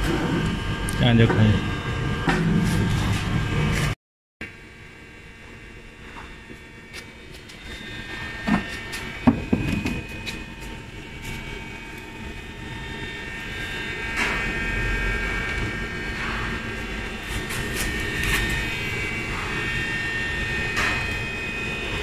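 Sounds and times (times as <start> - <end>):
workshop machinery drone: 0.0 - 22.0
high whining tones: 5.5 - 22.0.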